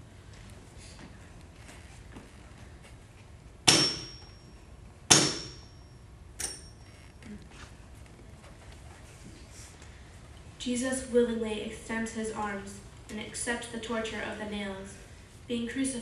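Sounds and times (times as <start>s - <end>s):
hammer blows on metal: 3.6s - 4.4s, 5.1s - 5.8s.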